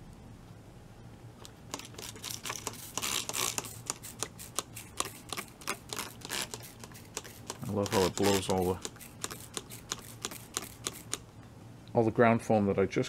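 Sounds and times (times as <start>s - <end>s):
spray bottle spritzing: 1.7s - 11.2s.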